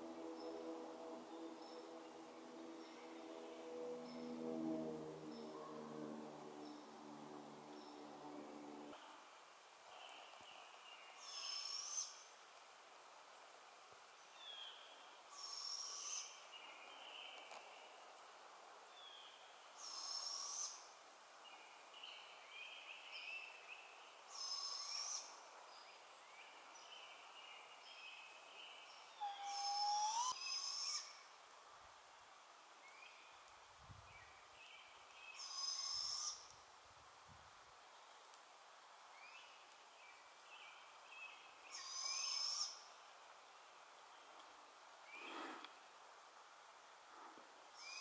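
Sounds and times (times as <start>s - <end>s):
faint steady hiss: 0.0s - 48.0s
songbirds singing: 21.5s - 31.2s.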